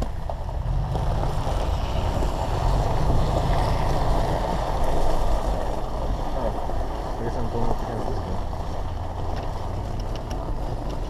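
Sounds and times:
car engine rumble inside cabin: 0.0s - 11.0s.

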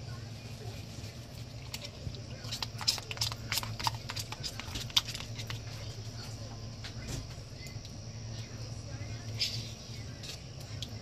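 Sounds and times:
steady low hum: 0.0s - 11.0s
plastic tub clicking and crackling: 1.6s - 5.7s.

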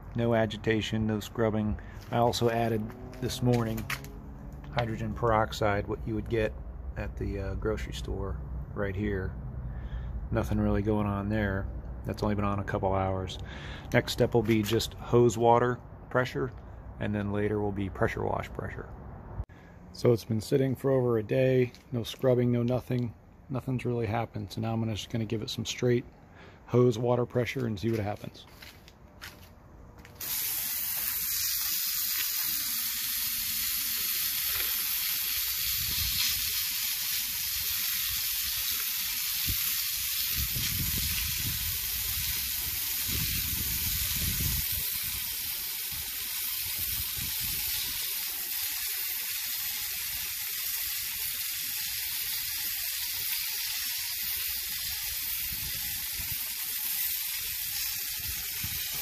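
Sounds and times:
hose nozzle spraying water on concrete: 0.4s - 6.3s, 30.1s - 59.0s.

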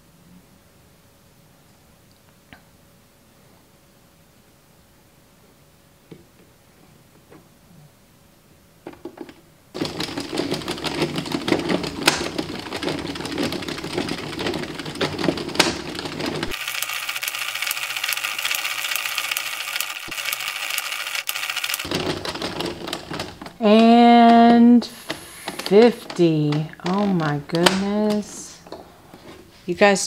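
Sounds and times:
knitting machine clattering: 9.8s - 28.8s.

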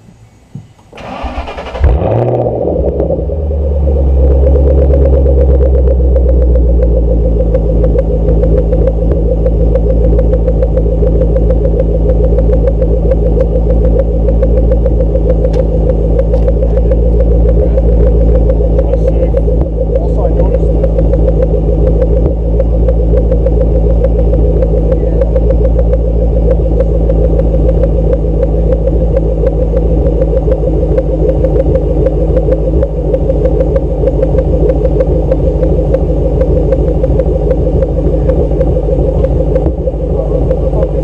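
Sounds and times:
starter motor cranking: 1.0s - 2.1s
car engine idling loudly: 1.9s - 41.0s.

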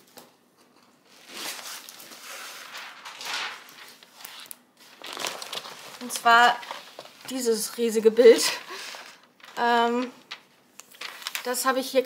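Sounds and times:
canvas and plastic film crinkling: 1.4s - 7.3s, 8.4s - 11.6s.

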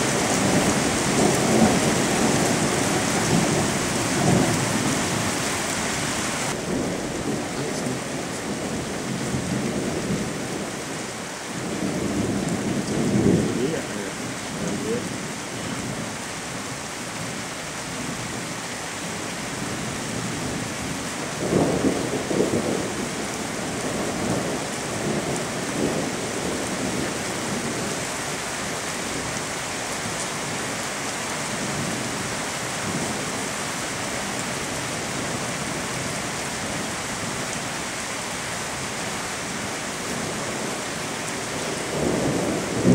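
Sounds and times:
thunder rumbling: 0.0s - 11.0s, 11.6s - 16.1s, 19.6s - 28.0s, 41.7s - 42.9s
heavy rain: 0.0s - 42.9s.

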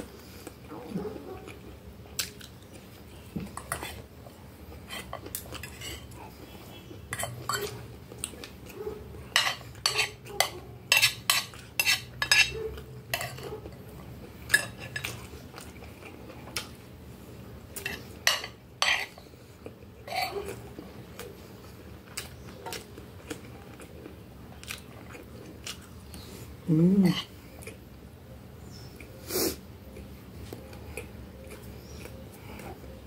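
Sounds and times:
cutlery clinking on glass plate: 9.4s - 13.5s, 17.8s - 19.1s.

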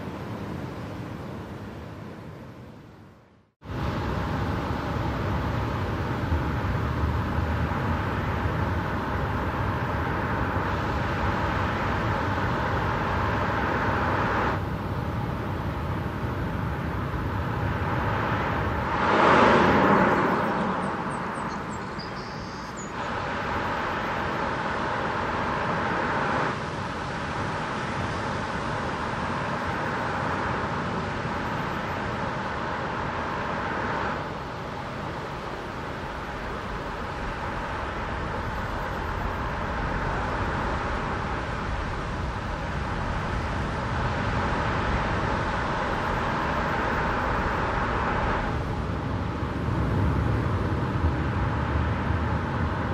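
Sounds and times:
vehicle passing whoosh: 16.8s - 34.8s.

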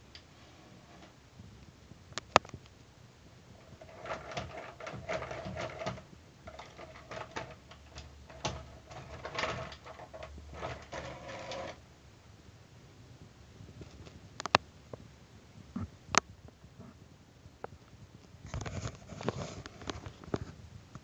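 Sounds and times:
clicks and rattles: 3.6s - 11.8s.

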